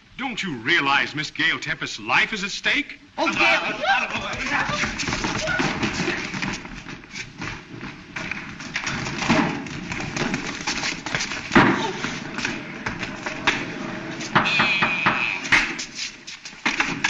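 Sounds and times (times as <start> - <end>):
running footsteps: 3.4 - 17.0
thumps and knocks: 14.3 - 15.8.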